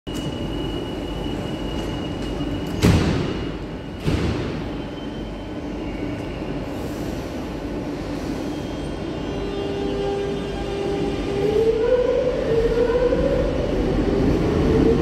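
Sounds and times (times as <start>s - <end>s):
train low hum: 0.1s - 15.0s
sliding doors banging shut: 2.7s - 4.7s.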